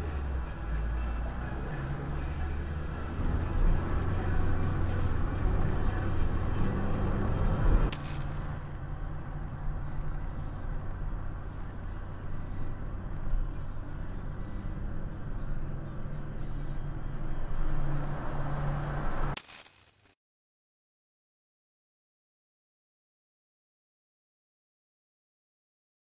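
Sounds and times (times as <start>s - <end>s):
car engine and road rumble: 0.0s - 19.4s.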